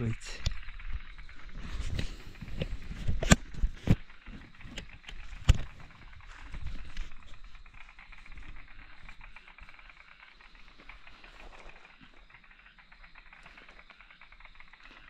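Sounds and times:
night insects humming: 0.0 - 15.0
camera handling knocks and rubbing: 1.8 - 7.3.

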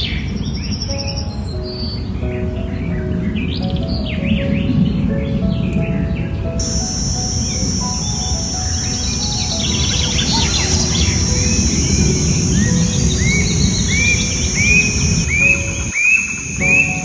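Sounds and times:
bird chirps: 0.0 - 17.0
bird whistled notes: 6.6 - 17.0
high-pitched insect buzz: 6.6 - 17.0.

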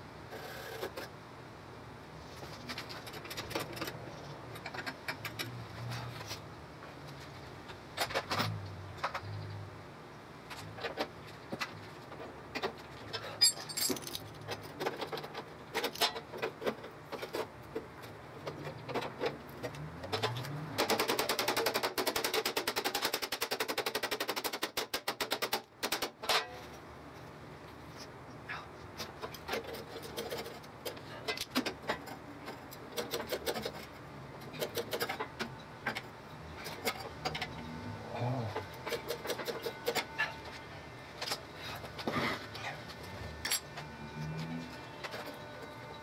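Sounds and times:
metal tools clinking: 13.1 - 14.6.

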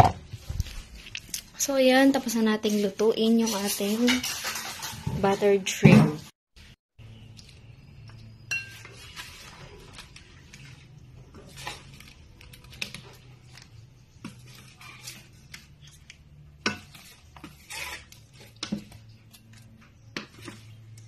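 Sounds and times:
spatula scraping in metal pan: 2.3 - 5.6, 16.6 - 21.0.

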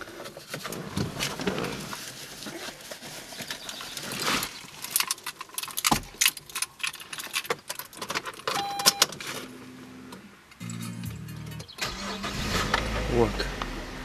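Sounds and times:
car keys jangling: 4.8 - 9.2
brief beep: 8.6 - 9.0.

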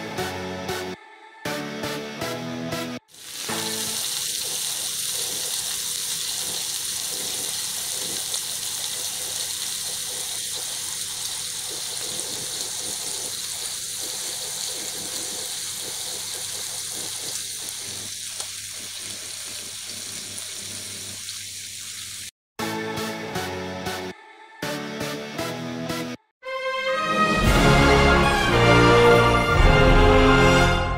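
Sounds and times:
meat sizzling in frying pan: 3.1 - 22.3.

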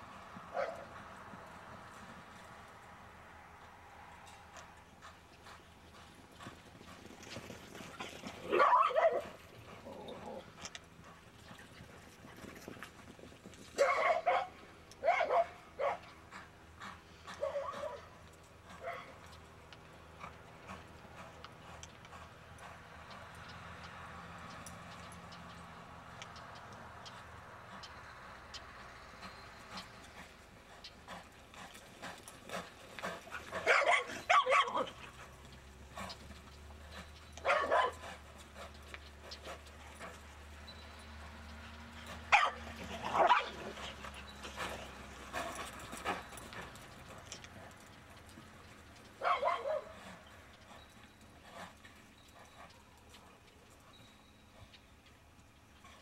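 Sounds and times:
horse hoofbeats in dirt: 0.0 - 56.0
dog barking and yelping: 8.4 - 10.4, 13.8 - 16.0, 17.4 - 18.1, 18.8 - 19.1, 33.6 - 35.0, 37.4 - 38.0, 42.2 - 44.1, 49.2 - 50.0.

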